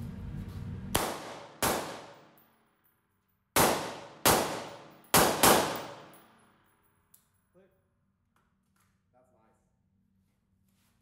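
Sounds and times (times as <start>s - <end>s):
suppressed rifle shots: 1.0s - 2.2s, 3.6s - 6.1s.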